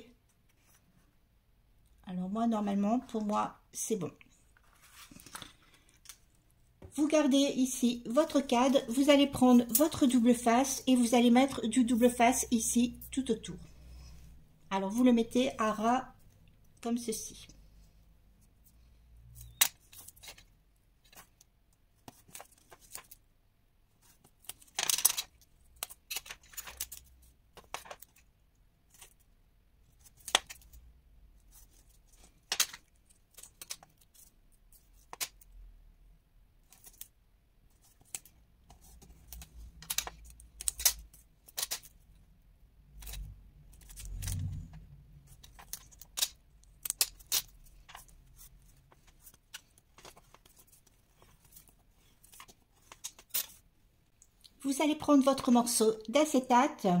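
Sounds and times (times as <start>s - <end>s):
card rustling: 4.6s - 6.3s, 45.3s - 53.6s.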